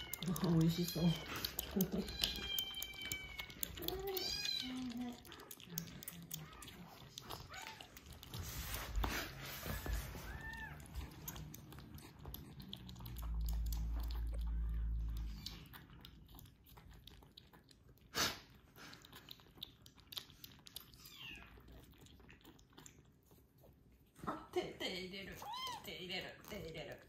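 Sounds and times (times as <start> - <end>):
kittens lapping milk: 0.0 - 27.0.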